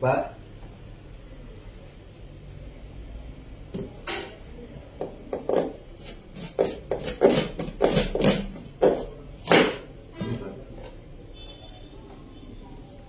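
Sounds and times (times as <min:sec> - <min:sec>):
knife chopping on cutting board: 0:05.0 - 0:09.9.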